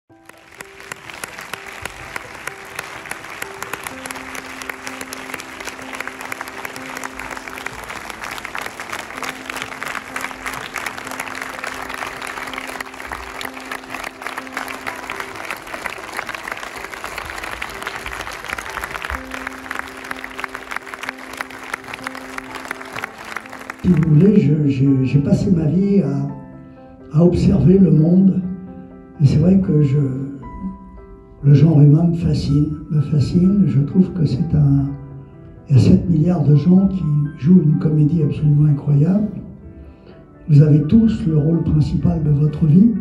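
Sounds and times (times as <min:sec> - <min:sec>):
audience applauding: 0:00.1 - 0:24.4
background music with held notes: 0:00.1 - 0:43.0.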